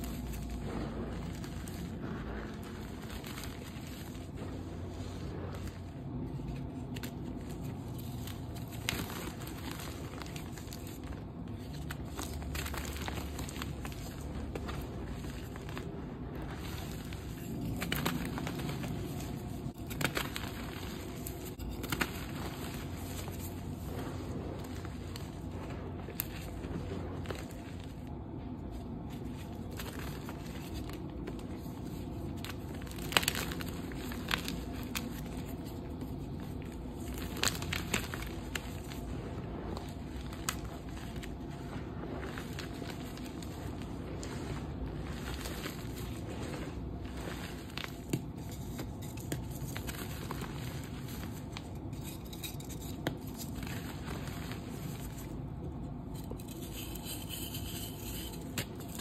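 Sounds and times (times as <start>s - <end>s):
chalk crunching and crackling: 0.0s - 59.0s.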